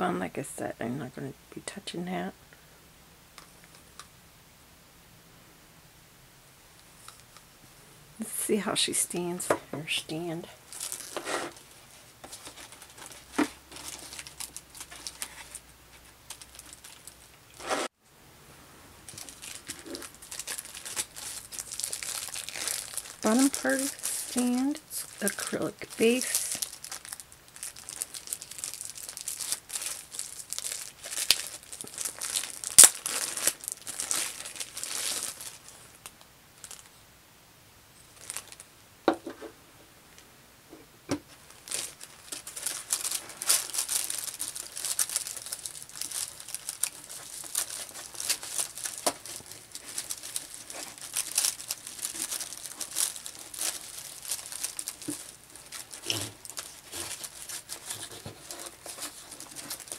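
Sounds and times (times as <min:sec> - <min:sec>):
plastic wrapping crinkling and tearing: 0:10.1 - 0:17.8, 0:19.0 - 0:36.9, 0:38.1 - 0:38.7, 0:41.3 - 0:59.9.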